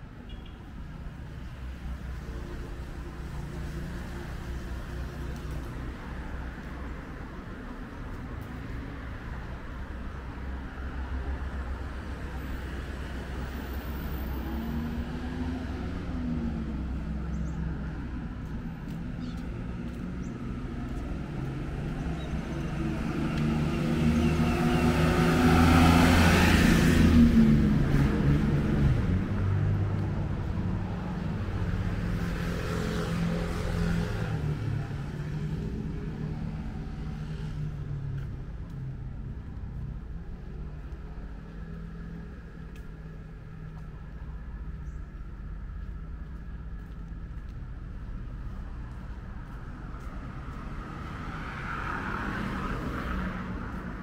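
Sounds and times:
vehicle passing by: 13.4s - 43.9s, 45.8s - 54.0s.

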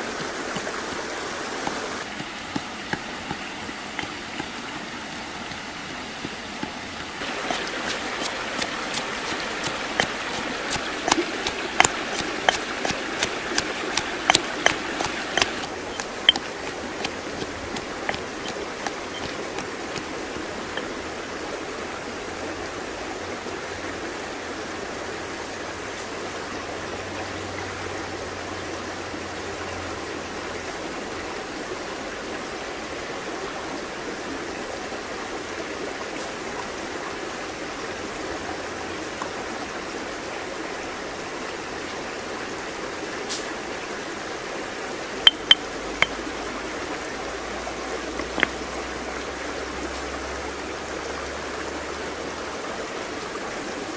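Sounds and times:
flowing stream: 0.0s - 53.9s
stone pestle knocking mortar: 4.0s - 4.9s, 7.5s - 20.9s, 45.3s - 46.2s, 48.2s - 48.6s.

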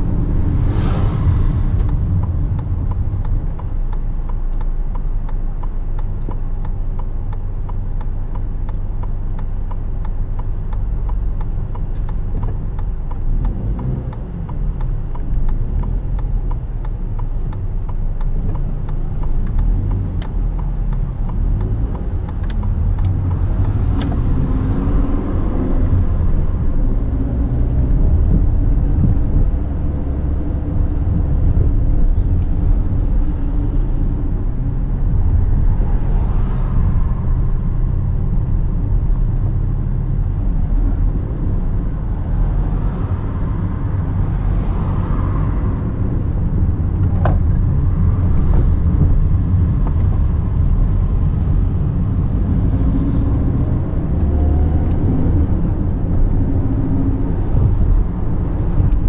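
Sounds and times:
car engine and tyre rumble: 0.0s - 59.0s
faint regular ticking: 1.8s - 23.8s.

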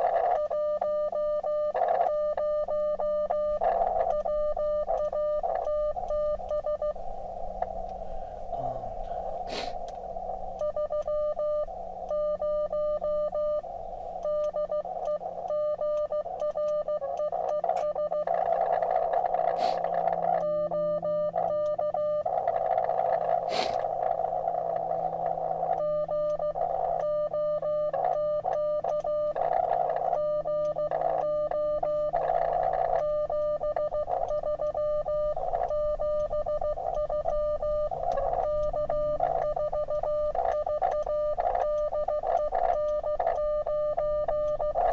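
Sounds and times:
morse code beeps: 0.0s - 7.0s, 9.6s - 44.9s
radio receiver hiss: 3.6s - 10.7s, 17.0s - 28.5s.

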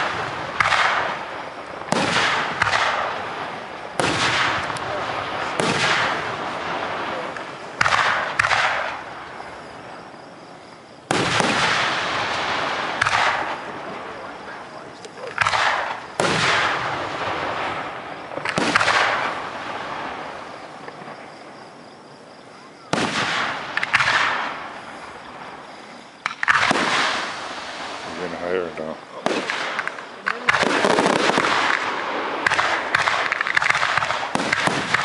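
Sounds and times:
firework shells booming: 0.0s - 21.6s, 22.8s - 35.0s.

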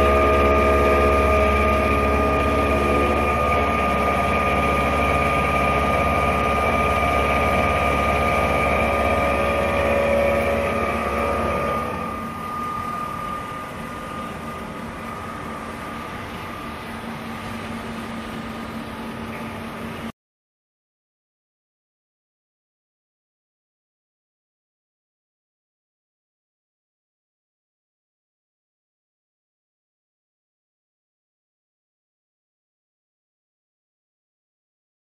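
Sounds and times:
machine low hum: 0.0s - 20.1s
milling machine spindle whine: 0.0s - 20.1s.

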